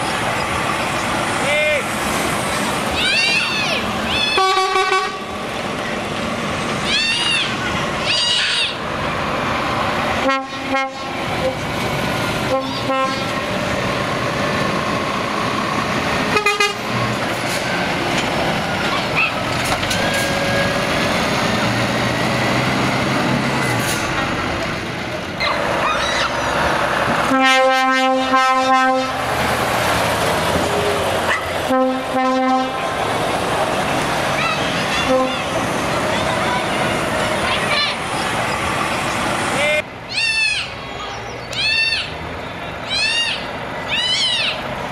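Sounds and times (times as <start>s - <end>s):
diesel lorries driving past: 0.0s - 44.9s
loud air horn blasts: 4.4s - 5.3s, 10.2s - 11.6s, 12.5s - 13.4s, 16.3s - 16.9s, 27.2s - 29.3s, 31.7s - 32.8s, 35.0s - 35.5s.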